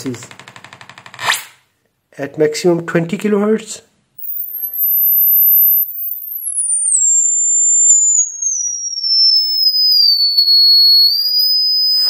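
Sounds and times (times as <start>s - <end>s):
high-pitched test tone whistle: 4.2s - 12.0s.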